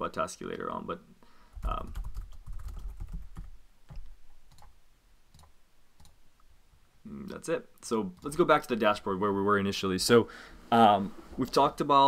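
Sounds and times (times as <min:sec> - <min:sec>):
keyboard typing: 0:01.6 - 0:04.7, 0:05.3 - 0:06.2.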